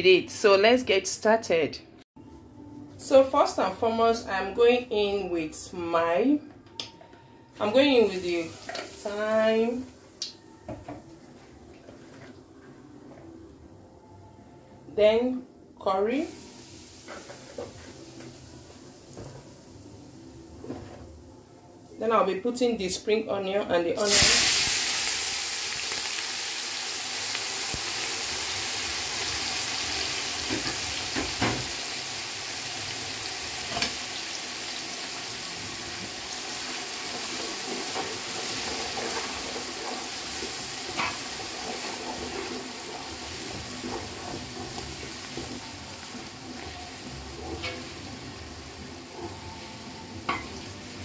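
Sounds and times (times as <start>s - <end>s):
onions sizzling in oil: 8.0s - 10.4s, 16.3s - 20.1s, 24.0s - 51.0s.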